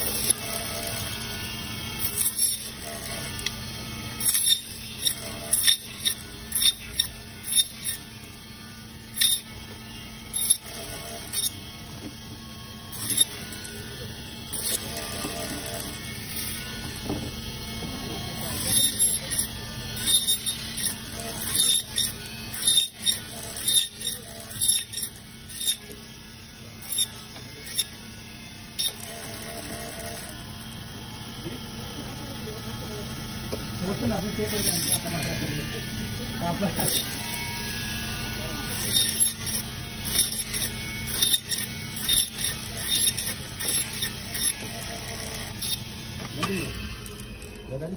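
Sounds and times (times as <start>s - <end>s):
saw blade scraping frozen fish: 0.0s - 11.6s, 12.9s - 26.0s, 26.7s - 28.1s, 28.7s - 30.3s, 33.8s - 47.9s
band saw motor humming: 0.0s - 47.9s
saw blade squealing through fish: 4.2s - 8.1s, 13.0s - 13.4s, 18.6s - 25.9s, 26.8s - 27.9s, 38.7s - 44.7s.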